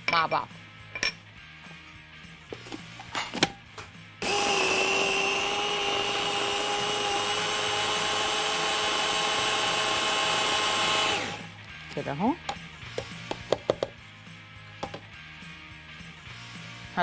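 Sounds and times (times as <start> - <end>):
food processor whining: 4.2 - 11.5.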